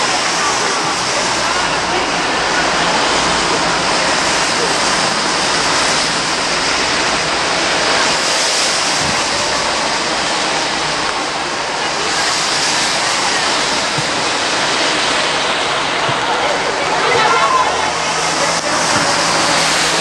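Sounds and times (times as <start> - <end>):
loud rushing hiss: 0.0 - 20.0.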